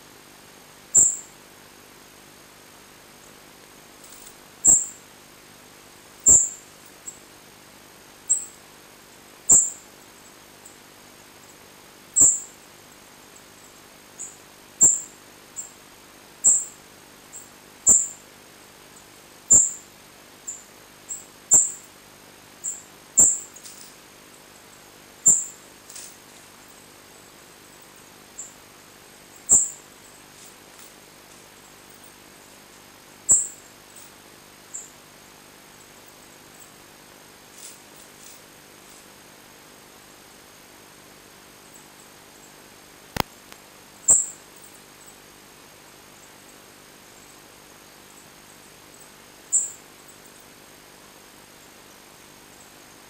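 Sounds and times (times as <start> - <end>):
songbird chirping: 0.9 - 1.4, 4.1 - 5.0, 6.2 - 7.2, 8.3 - 8.6, 9.5 - 9.9, 12.2 - 12.6, 13.6 - 15.8, 16.4 - 18.2, 19.5 - 19.9, 20.5 - 21.9, 22.6 - 23.8, 24.6 - 26.1, 29.2 - 30.5, 33.3 - 34.1, 44.1 - 44.4.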